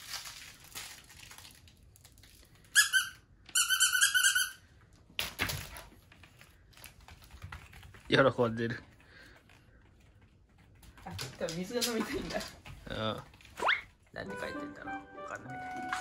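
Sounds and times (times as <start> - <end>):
squeaky dog toy squeaking: 2.7 - 4.6, 13.6 - 13.9.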